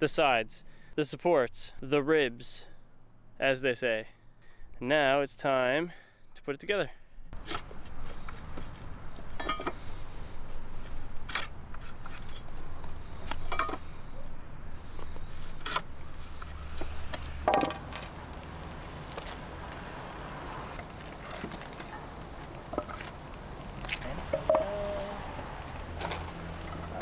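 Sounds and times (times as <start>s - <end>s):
lumber and tools clattering on asphalt: 7.4s - 10.0s, 10.8s - 13.9s, 14.9s - 19.9s, 20.8s - 25.0s, 25.8s - 27.0s.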